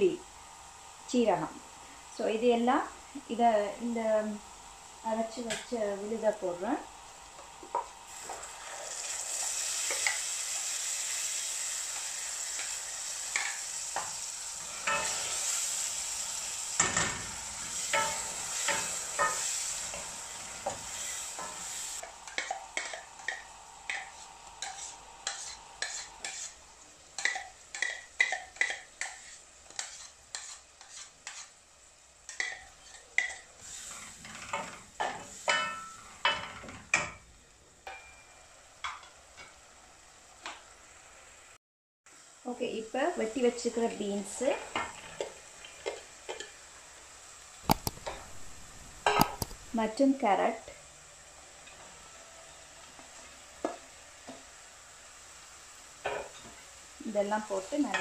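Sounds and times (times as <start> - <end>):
paste sizzling in hot oil: 0.5 - 58.0
wooden spatula scraping a steel pan: 23.9 - 26.6, 27.2 - 31.6.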